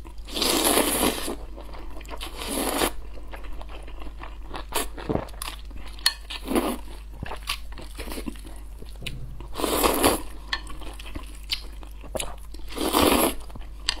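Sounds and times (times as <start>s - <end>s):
wet chewing with crunchy bites: 0.0s - 14.0s.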